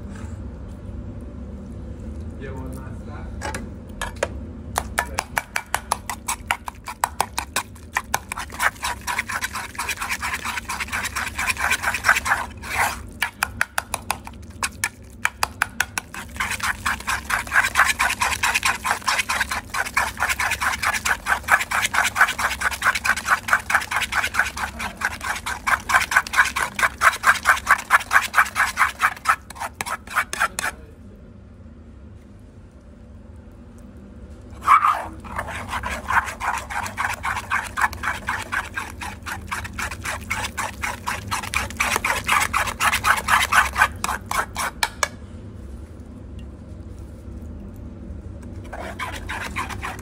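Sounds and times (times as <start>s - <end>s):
metal spoon scraping in ladle: 8.4s - 13.0s, 16.2s - 30.7s, 34.6s - 44.8s, 48.6s - 50.0s.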